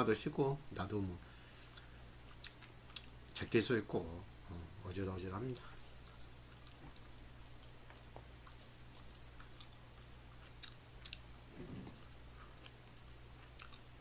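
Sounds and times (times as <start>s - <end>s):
low electrical hum: 0.0s - 14.0s
chewing and mouth sounds: 1.7s - 3.2s, 5.6s - 14.0s.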